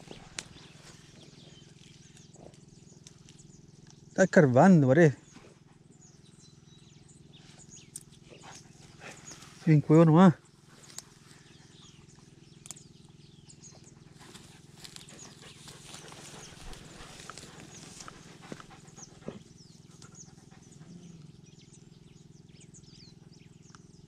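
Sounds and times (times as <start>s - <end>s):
dogs rustling in dry brush: 14.2s - 19.0s.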